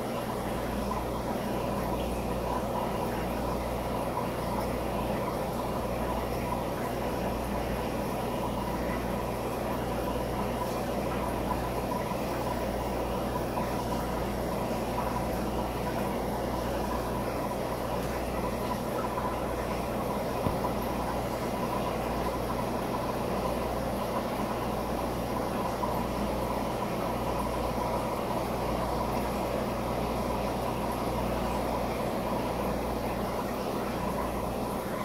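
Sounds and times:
aquarium equipment humming: 0.0 - 35.0.

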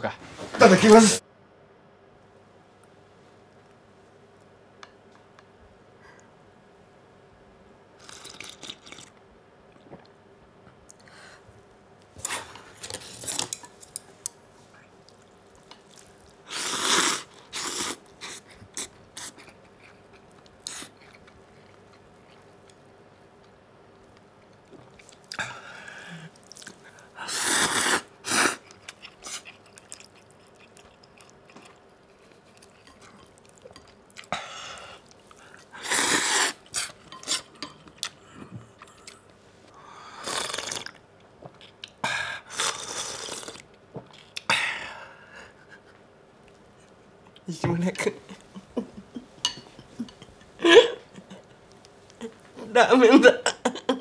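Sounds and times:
noodles slurped loudly: 8.0 - 9.1, 15.9 - 19.4, 40.2 - 41.0.

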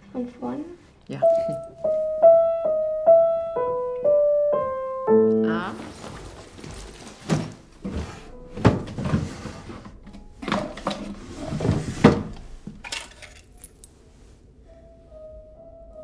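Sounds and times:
rummaging through wooden drawer: 5.8 - 13.5.

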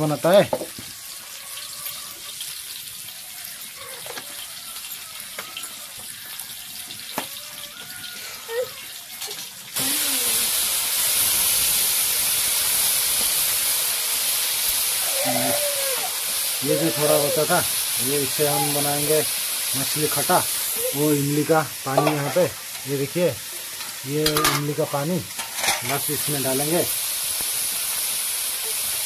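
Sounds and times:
fish sizzling in hot oil: 0.0 - 29.0.

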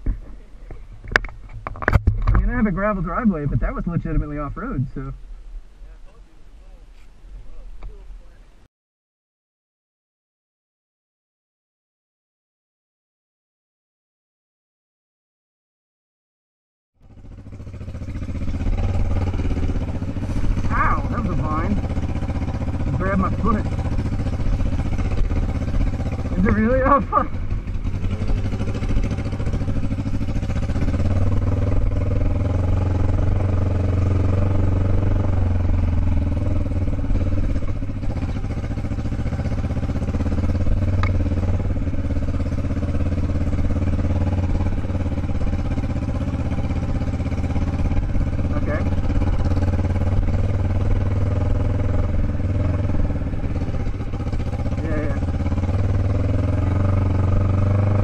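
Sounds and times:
motorcycle engine running: 0.0 - 5.2, 17.0 - 58.0.

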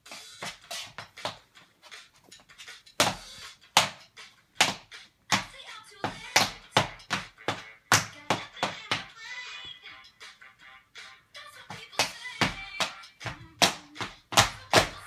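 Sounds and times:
bare feet stomping on wooden floor: 3.0 - 3.2, 3.8 - 4.0, 4.6 - 9.1, 11.7 - 15.0.

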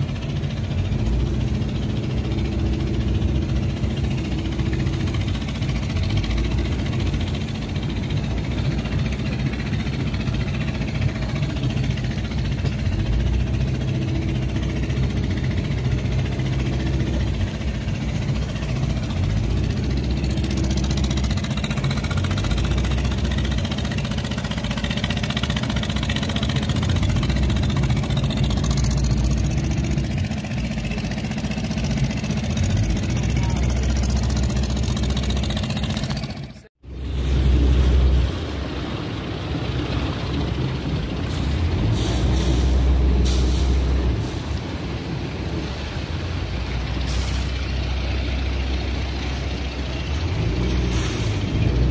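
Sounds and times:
boat engine chugging: 0.0 - 51.9
water and wind hiss: 37.0 - 51.9.

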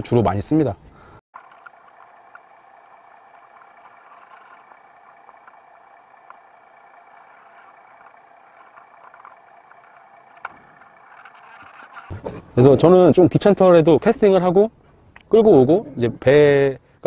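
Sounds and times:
muffled underwater engine drone: 1.4 - 11.9.

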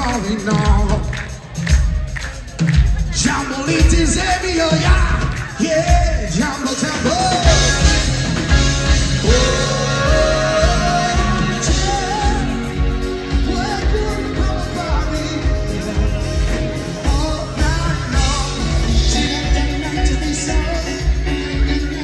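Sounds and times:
bass: 0.0 - 22.0
keyboard: 0.0 - 22.0
steady drum beat: 0.0 - 22.0
person singing: 3.0 - 22.0
electric guitar: 6.9 - 22.0.

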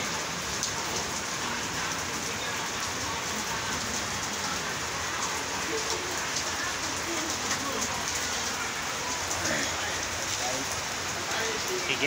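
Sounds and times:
rain splashing on concrete: 0.0 - 12.0.

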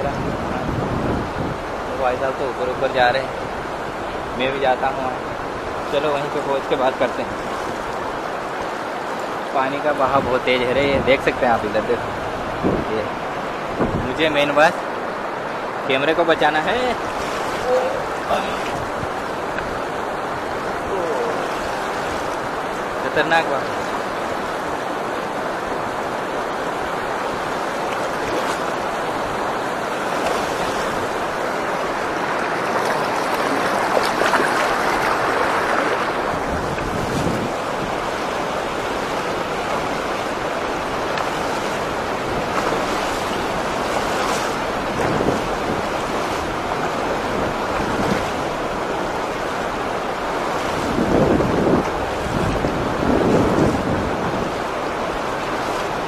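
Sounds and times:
wind on microphone: 0.0 - 5.9, 10.0 - 14.4, 16.7 - 56.0
river rushing over rapids: 0.0 - 56.0.

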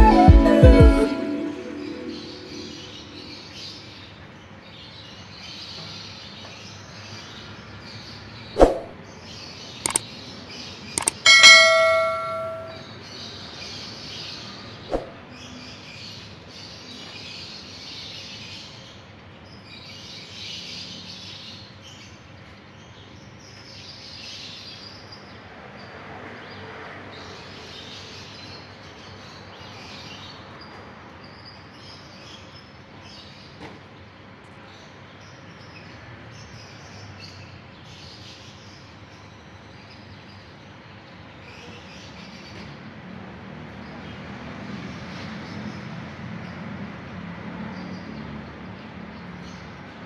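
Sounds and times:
click and ringing chime: 0.0 - 3.3, 11.0 - 12.8
single click: 11.0 - 12.8.

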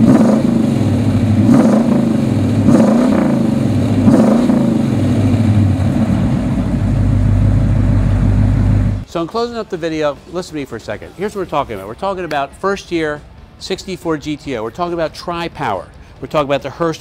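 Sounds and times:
car engine revving and idling: 0.0 - 9.0.

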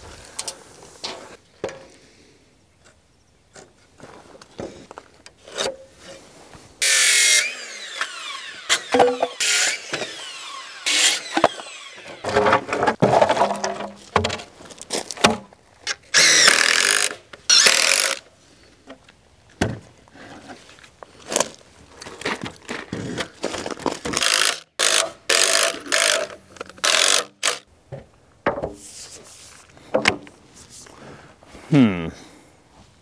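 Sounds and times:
boards being handled: 8.7 - 10.2, 10.9 - 16.0, 18.8 - 30.8
impact driver driving screws: 16.2 - 18.2, 24.1 - 27.6.

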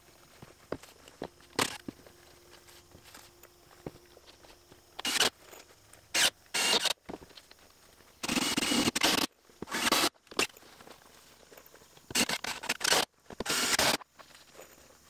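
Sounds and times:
sharp clicks: 4.9 - 7.0, 8.2 - 10.6, 12.0 - 14.1.

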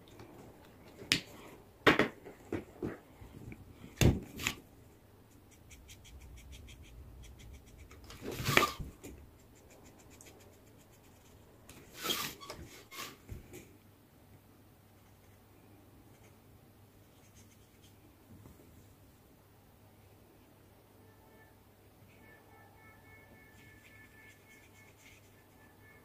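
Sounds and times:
paper rustling: 4.1 - 4.6, 8.0 - 9.2.

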